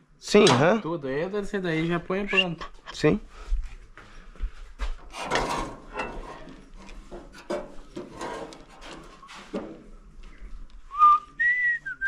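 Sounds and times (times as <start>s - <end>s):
hand tools knocking and clinking: 0.4s - 1.0s
person whistling: 10.9s - 12.0s.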